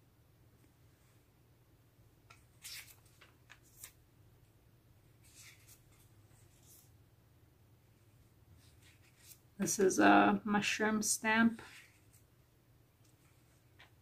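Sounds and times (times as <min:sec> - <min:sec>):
paper pages turning: 0:02.3 - 0:04.0, 0:05.2 - 0:06.9, 0:08.6 - 0:09.5, 0:11.7 - 0:12.3.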